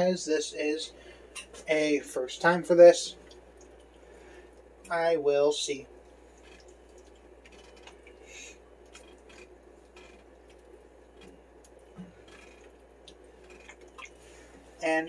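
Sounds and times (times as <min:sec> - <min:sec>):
low steady hum: 0:00.0 - 0:15.0
stew popping and bubbling: 0:03.2 - 0:04.9, 0:05.9 - 0:14.6.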